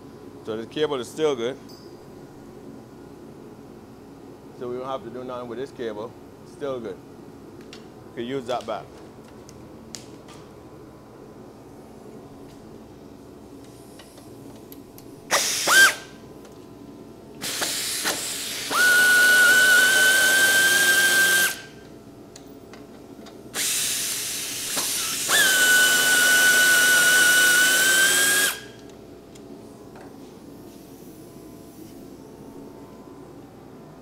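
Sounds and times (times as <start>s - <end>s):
power tool whining: 15.3s - 16.1s, 17.4s - 21.8s, 23.6s - 28.8s.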